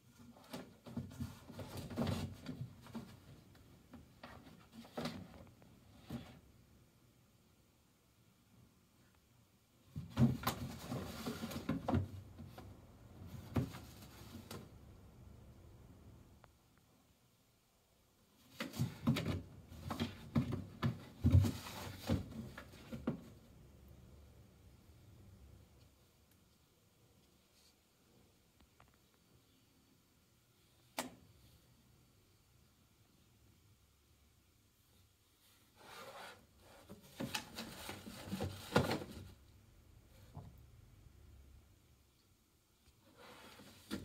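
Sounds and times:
box scraping on tile floor: 10.6s - 11.8s, 35.8s - 39.2s, 43.1s - 44.0s.

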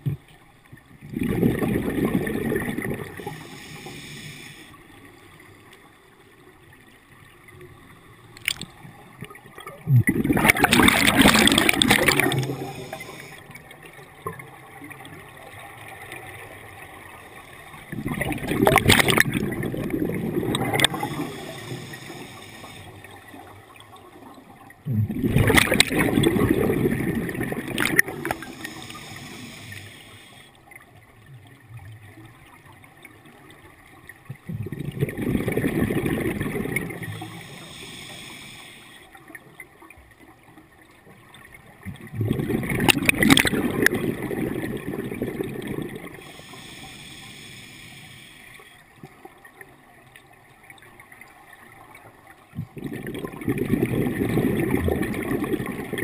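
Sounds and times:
exhaled bubbles rushing: 1.0s - 3.5s, 9.2s - 13.2s, 17.8s - 21.7s, 24.8s - 28.8s, 34.3s - 37.5s, 41.8s - 46.3s, 52.5s - 56.0s
diver breathing through regulator: 3.2s - 4.8s, 11.4s - 13.5s, 20.7s - 23.1s, 28.0s - 30.6s, 37.0s - 39.2s, 46.1s - 48.9s.

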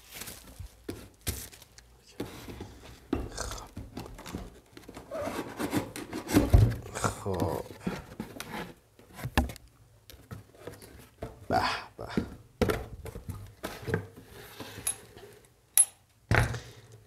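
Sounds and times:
cardboard rustling and scraping: 0.0s - 3.1s, 3.9s - 9.6s, 12.9s - 15.4s.

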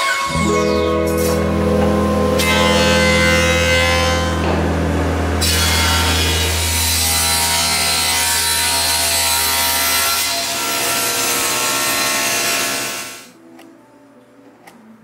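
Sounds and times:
low motor hum: 0.3s - 10.0s
thickness planer feeding board: 0.3s - 13.0s
table saw ripping wood: 0.3s - 13.2s.

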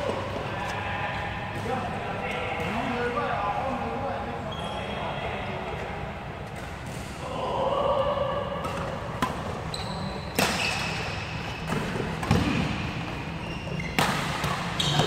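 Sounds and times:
shoes squeaking on court: 9.4s - 15.0s
rackets striking shuttlecock: 10.3s - 13.2s, 13.8s - 15.0s.

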